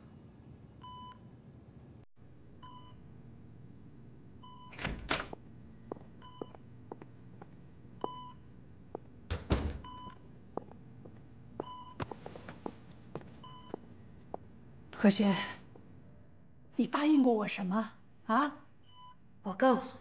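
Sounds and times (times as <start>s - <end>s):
patient monitor beeping: 5.9s - 7.1s, 8.0s - 8.5s, 9.8s - 10.8s, 11.6s - 12.2s, 13.4s - 13.9s
footsteps: 10.6s - 14.5s.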